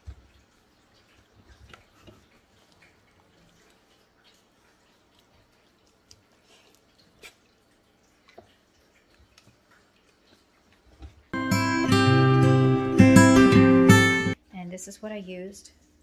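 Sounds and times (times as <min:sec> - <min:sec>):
acoustic guitar music: 0:11.4 - 0:14.4.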